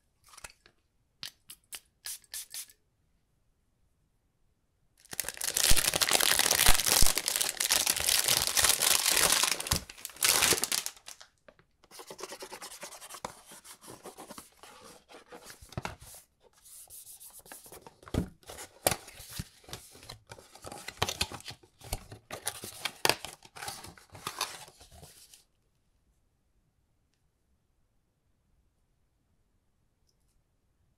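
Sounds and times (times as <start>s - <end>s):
packaging tearing and crinkling: 5.0s - 11.3s.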